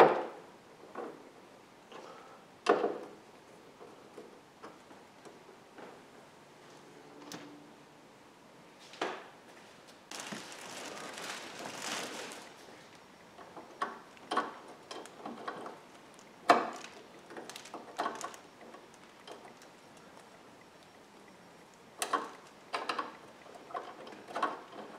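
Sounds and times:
rustling: 9.5s - 20.4s.

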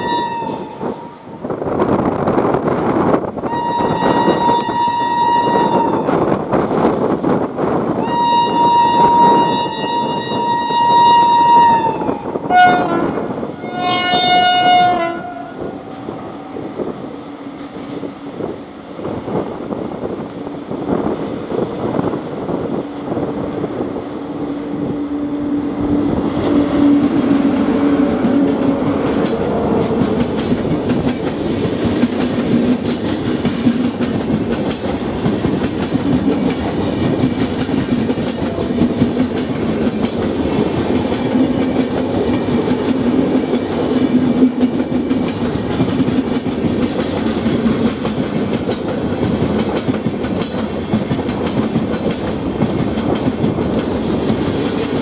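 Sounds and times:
locomotive horn blasts: 0.0s - 1.2s, 3.4s - 6.2s, 8.0s - 16.6s
train rumble and clickety-clack: 0.0s - 55.0s.

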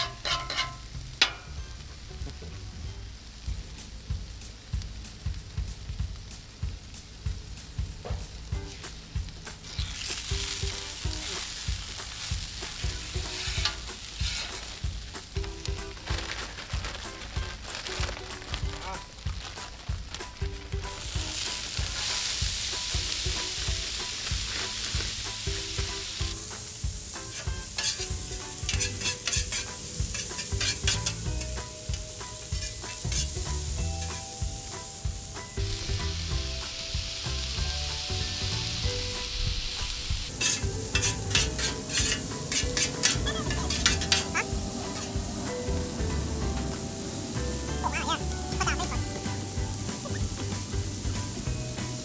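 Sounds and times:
metal spatula scraping griddle: 0.0s - 1.4s, 12.6s - 15.0s, 27.2s - 34.3s, 39.9s - 45.2s
food sizzling on griddle: 0.0s - 52.0s.

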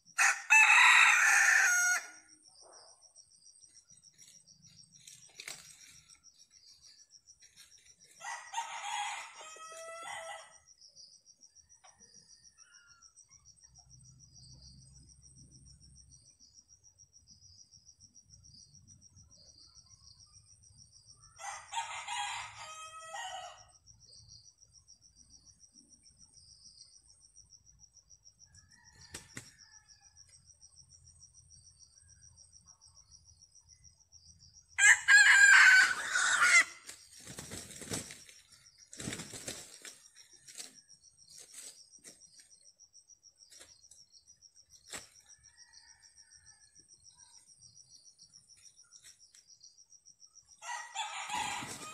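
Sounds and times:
high insect trill: 0.0s - 51.9s
roosters crowing: 0.2s - 2.3s, 8.2s - 10.6s, 21.4s - 23.7s, 34.8s - 36.9s, 50.6s - 51.9s.

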